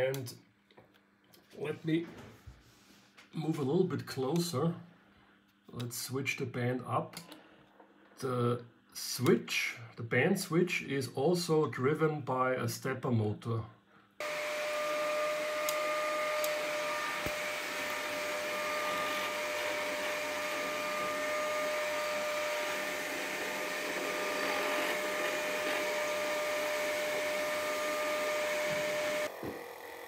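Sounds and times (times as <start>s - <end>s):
electric motor whirring: 14.2s - 30.0s.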